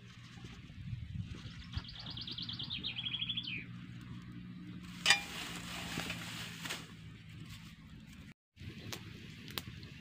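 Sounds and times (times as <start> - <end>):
songbird trilling: 1.8 - 3.7.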